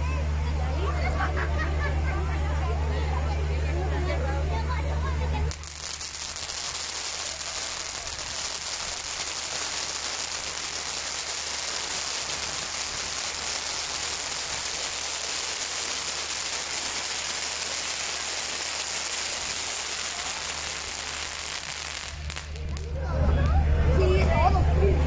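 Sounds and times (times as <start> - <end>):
firework fountains hissing and crackling: 5.2 - 23.2.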